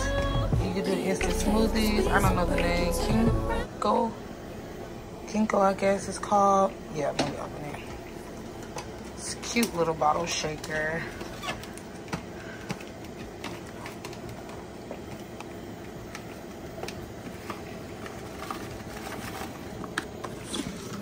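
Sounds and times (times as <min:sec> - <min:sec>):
background hum: 0:00.0 - 0:21.0.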